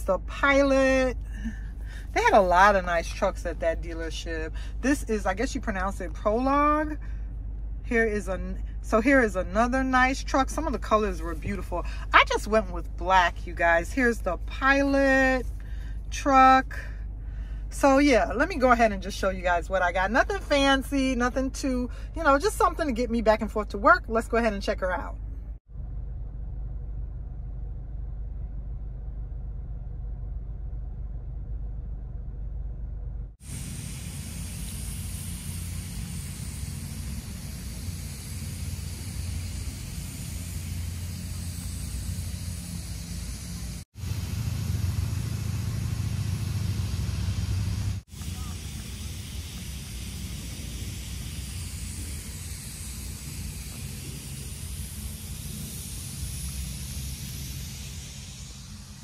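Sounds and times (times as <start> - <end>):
car cabin rumble: 0.0 - 16.9
low rumble: 0.0 - 59.0
outdoor hiss: 33.4 - 59.0.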